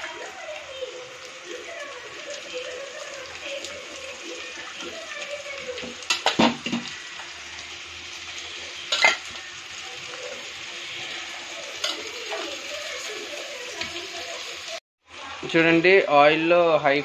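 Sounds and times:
meat sizzling in hot oil: 0:00.0 - 0:17.0
steel spoon clanking on metal: 0:08.9 - 0:09.3.

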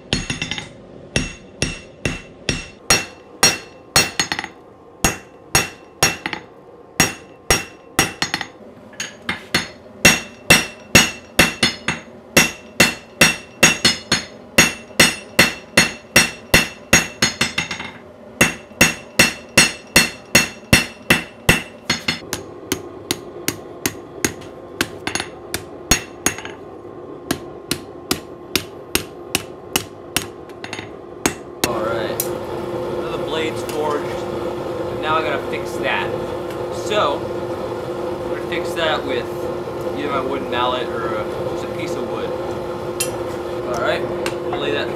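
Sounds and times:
hammer striking steel anvil: 0:00.0 - 0:26.6, 0:27.3 - 0:31.8.

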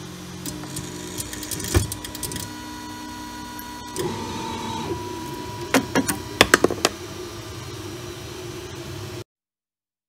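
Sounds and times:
stepper motors whining: 0:00.4 - 0:06.6.

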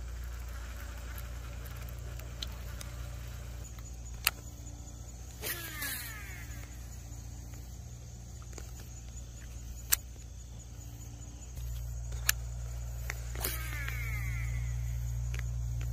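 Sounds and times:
insects chirping: 0:00.0 - 0:15.9
sharp clicks: 0:00.2 - 0:15.9
steady low rumble: 0:06.1 - 0:15.9.

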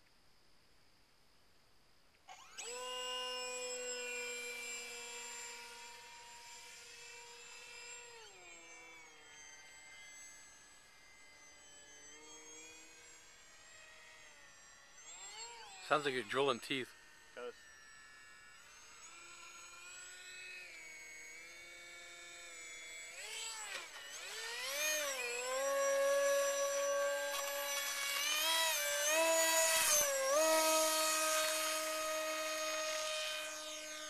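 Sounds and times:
model plane motor whining: 0:02.3 - 0:34.0.

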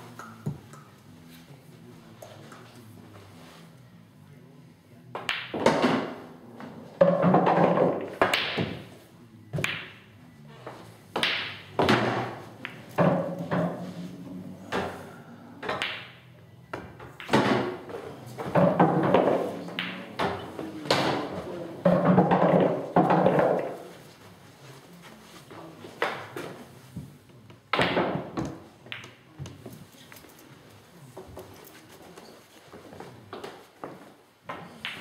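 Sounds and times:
pool balls knocking together: 0:07.0 - 0:08.8, 0:11.2 - 0:15.0, 0:16.8 - 0:23.8.

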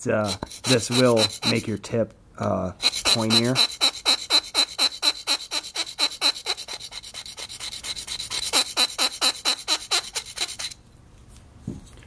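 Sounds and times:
metal tip scraping on ceramic stone: 0:00.2 - 0:01.8, 0:02.8 - 0:10.8.

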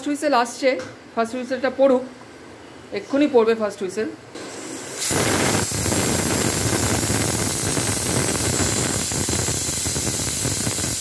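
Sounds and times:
pressure cooker steam hissing: 0:04.4 - 0:11.0.

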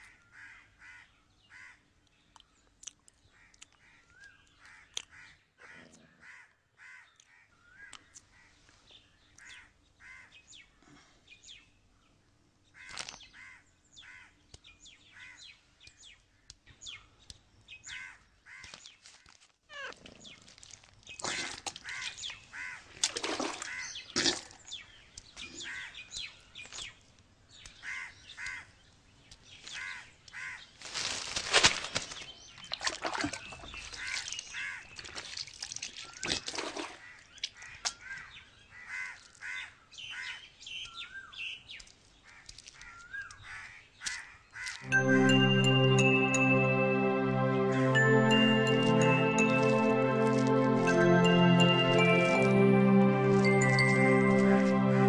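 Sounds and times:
crows cawing: 0:00.0 - 0:01.8, 0:04.6 - 0:08.6, 0:09.5 - 0:10.4, 0:12.8 - 0:14.4, 0:21.3 - 0:22.9, 0:27.8 - 0:28.7, 0:29.8 - 0:30.7, 0:37.0 - 0:40.3.

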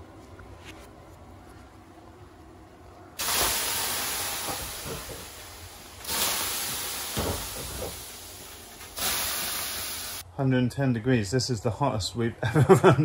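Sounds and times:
water hissing on hot rocks: 0:03.2 - 0:10.2.

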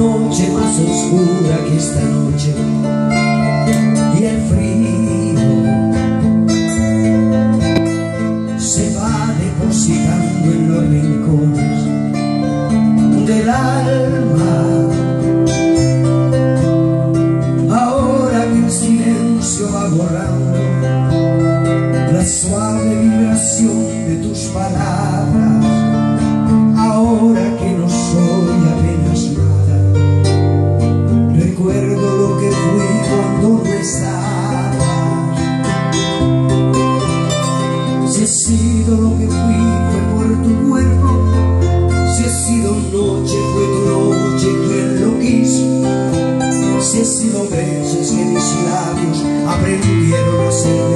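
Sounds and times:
acoustic guitars playing: 0:00.0 - 0:50.9.

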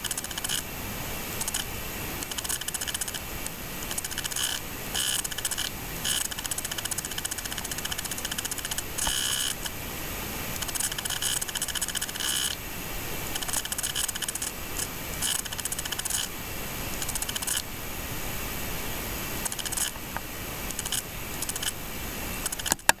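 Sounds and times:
steady hiss: 0:00.0 - 0:23.0
film projector clattering: 0:01.4 - 0:03.2, 0:03.9 - 0:09.8, 0:19.4 - 0:21.8, 0:22.4 - 0:23.0.

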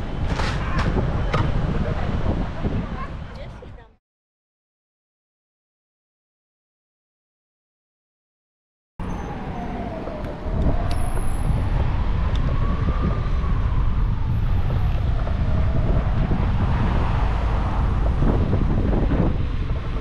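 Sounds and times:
wind rumbling on microphone: 0:00.0 - 0:03.9, 0:09.0 - 0:20.0
road noise: 0:00.0 - 0:04.0, 0:09.0 - 0:20.0.

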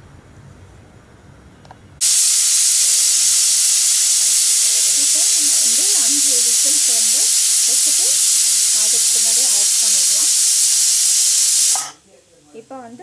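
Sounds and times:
pressure cooker steam hissing: 0:02.0 - 0:12.0.

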